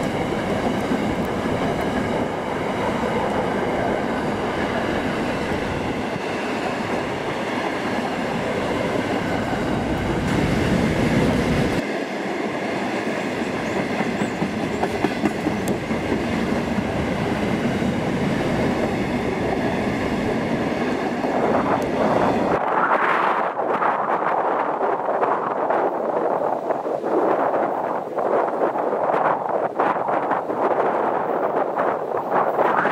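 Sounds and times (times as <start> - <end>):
wheels clacking over rail joints: 12.8 - 22.5.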